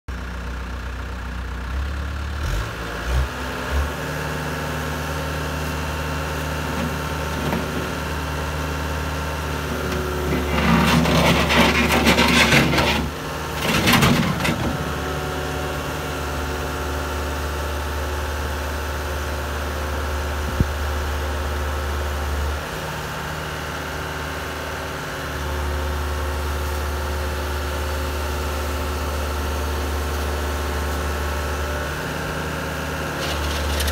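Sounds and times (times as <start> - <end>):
diesel engine running: 0.1 - 33.9
hydraulics working: 9.7 - 15.1.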